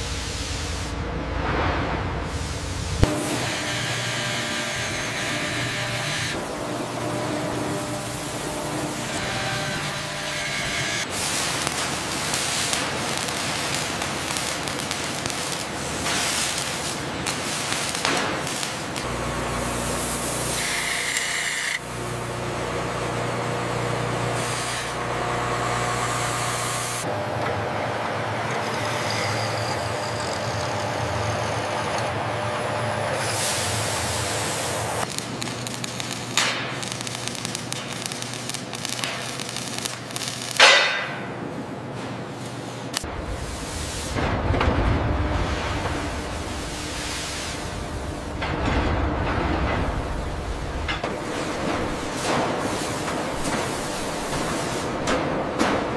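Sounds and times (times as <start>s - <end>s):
arc welding crackle: 2.9s - 27.1s, 33.1s - 41.0s, 45.2s - 55.8s
metal machining: 3.1s - 17.8s, 18.8s - 22.0s, 24.2s - 35.0s.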